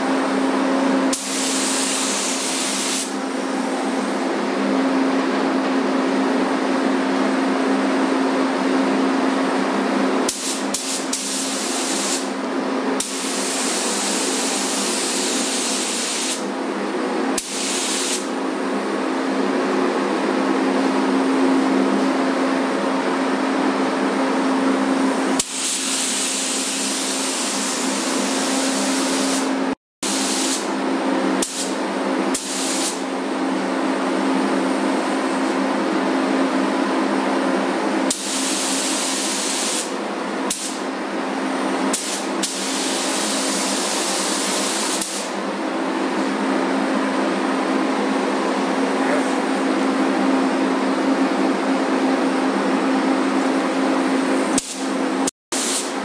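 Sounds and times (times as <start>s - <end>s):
paint spray gun hissing: 1.1s - 3.2s, 10.3s - 12.3s, 13.0s - 16.4s, 17.4s - 18.3s, 25.4s - 30.7s, 31.4s - 33.0s, 38.1s - 39.9s, 41.9s - 45.3s, 54.5s - 55.0s, 55.6s - 56.0s.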